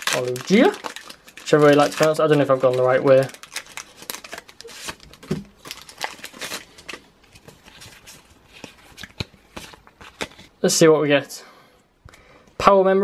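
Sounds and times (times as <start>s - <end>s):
foil wrapper tearing and crinkling: 0.0s - 7.0s
cards rustling and clicking: 0.0s - 10.5s.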